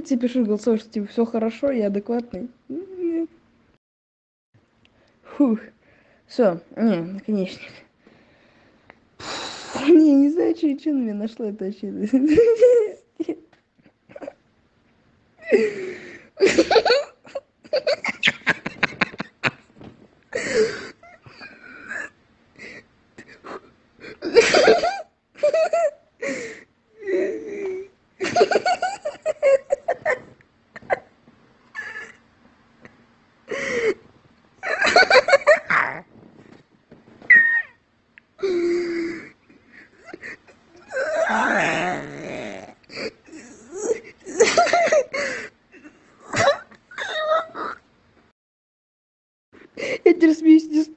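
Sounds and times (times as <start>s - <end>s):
man wheezing laughter: 42.9s - 47.8s.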